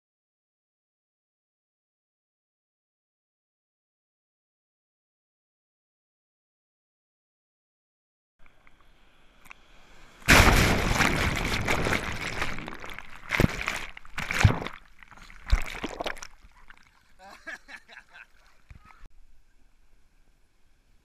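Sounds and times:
rush of foaming water: 0:09.6 - 0:17.1
sharp splashes hitting camera: 0:09.9 - 0:17.2.

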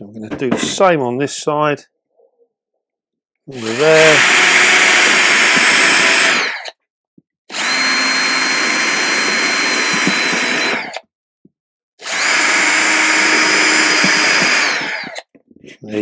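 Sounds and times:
electric drill boring plastic: 0:03.5 - 0:06.8, 0:07.5 - 0:11.1, 0:12.0 - 0:15.3.

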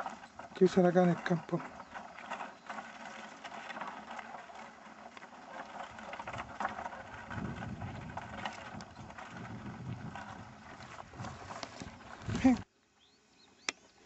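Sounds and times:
wooden cart rattling over dirt: 0:00.0 - 0:12.7.

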